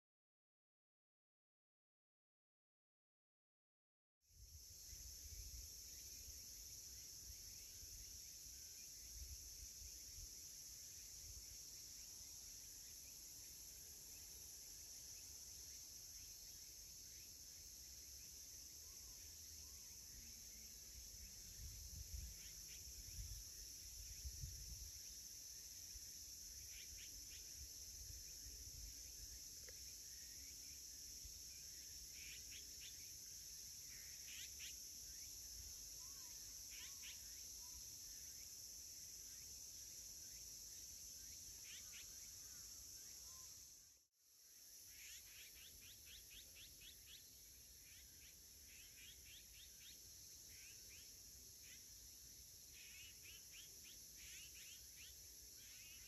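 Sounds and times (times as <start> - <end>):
insects droning: 4.3 - 56.0
faint bird calls: 36.0 - 37.8.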